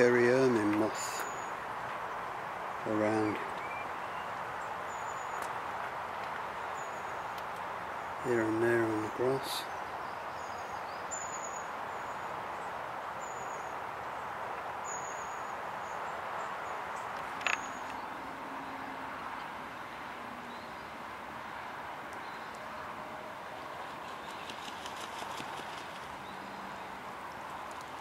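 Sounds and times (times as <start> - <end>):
steady background hiss: 0.0 - 28.0
faint high bird calls: 3.3 - 5.6, 14.8 - 18.8.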